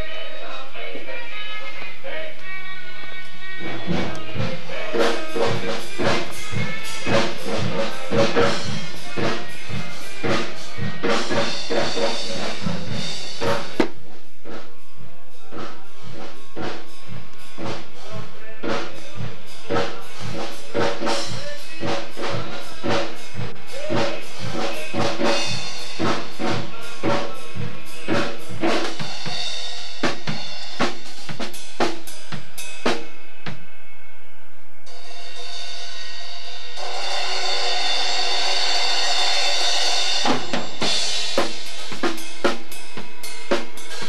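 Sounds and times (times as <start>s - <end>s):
drum kit playing fast patterns: 3.3s - 33.8s, 34.9s - 44.0s
cymbals ringing: 34.9s - 44.0s.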